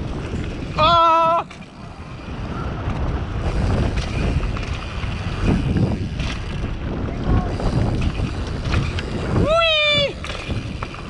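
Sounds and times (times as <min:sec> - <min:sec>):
tyres rumbling over dirt: 0:00.0 - 0:11.0
wind rushing over microphone: 0:00.0 - 0:11.0
bike knocking over bumps: 0:10.0 - 0:11.0.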